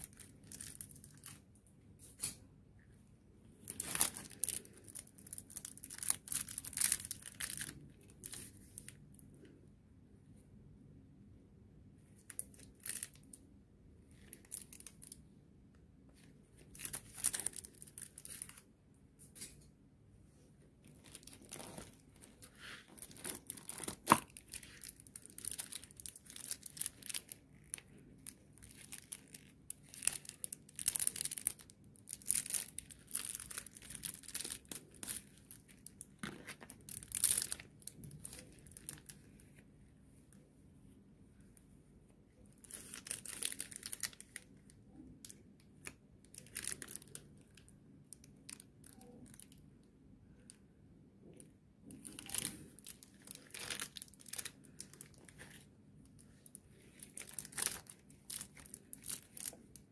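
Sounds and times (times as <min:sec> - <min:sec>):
plastic sleeves crinkling: 0:00.0 - 0:02.9, 0:03.6 - 0:09.5, 0:12.0 - 0:13.4, 0:14.1 - 0:15.4, 0:16.1 - 0:19.7, 0:20.8 - 0:40.4, 0:42.3 - 0:49.6, 0:51.2 - 0:59.9.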